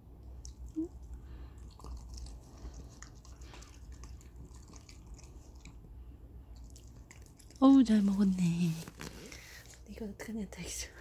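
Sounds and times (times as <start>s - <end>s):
dog chewing wetly: 0.2s - 8.3s.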